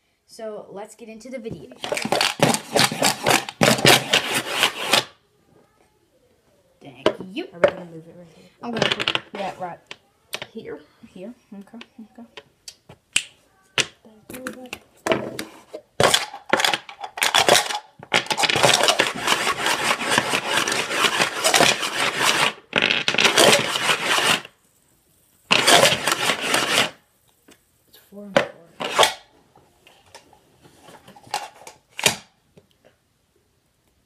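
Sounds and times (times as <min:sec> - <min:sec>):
dice rattling in plastic cup: 0:01.8 - 0:05.1, 0:08.8 - 0:09.5, 0:16.0 - 0:24.5, 0:25.5 - 0:27.0
dice clicking into stack: 0:16.0 - 0:24.4.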